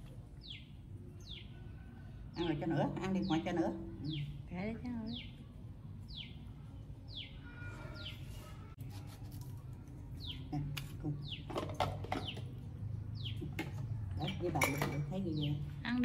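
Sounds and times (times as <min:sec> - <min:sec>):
small bird chirping: 0:05.0 - 0:08.7.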